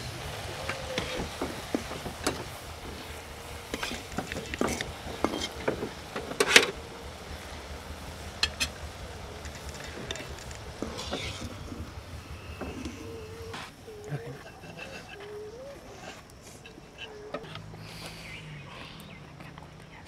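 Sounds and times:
food deep-frying in oil: 0:00.0 - 0:13.1
metal spatula scraping wok: 0:03.7 - 0:05.7, 0:08.4 - 0:12.8.

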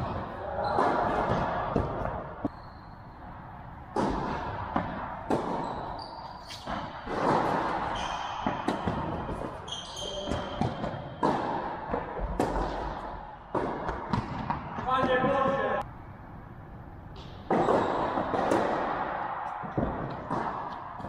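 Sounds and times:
racket striking ball: 0:03.9 - 0:05.8, 0:06.6 - 0:09.6, 0:10.2 - 0:14.8, 0:17.2 - 0:21.0
shoes squeaking on court: 0:05.5 - 0:07.0, 0:09.3 - 0:11.2
ball bouncing: 0:06.6 - 0:15.7.

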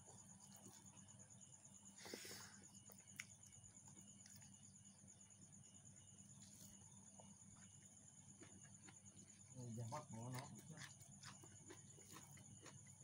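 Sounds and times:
crickets trilling: 0:00.0 - 0:13.0
person chewing: 0:08.3 - 0:13.0.

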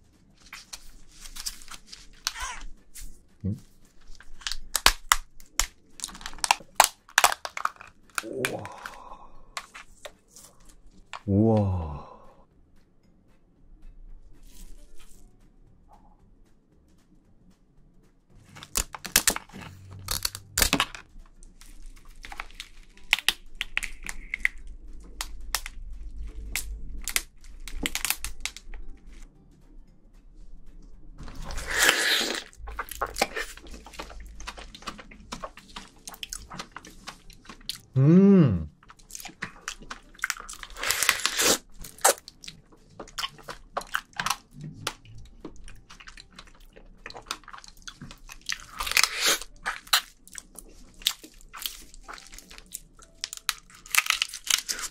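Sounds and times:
chewing with crunches: 0:00.4 - 0:11.3, 0:18.4 - 0:29.3, 0:31.2 - 0:38.0, 0:38.7 - 0:54.9
person humming: 0:11.3 - 0:12.4, 0:37.9 - 0:38.7
sucking and slurping: 0:31.3 - 0:42.3, 0:43.0 - 0:52.5.

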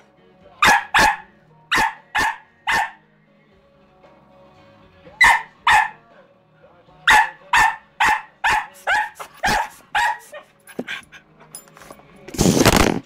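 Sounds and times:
puppy barking: 0:00.6 - 0:03.0, 0:05.2 - 0:06.1, 0:07.0 - 0:11.0.

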